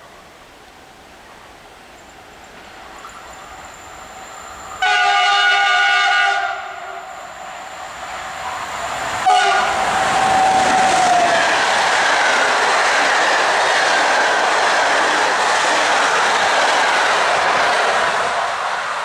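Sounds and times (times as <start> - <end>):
electric locomotive passing: 1.6 - 19.0
train horn chord: 4.8 - 7.1, 9.2 - 9.8
wheels rumbling on rails: 7.1 - 19.0.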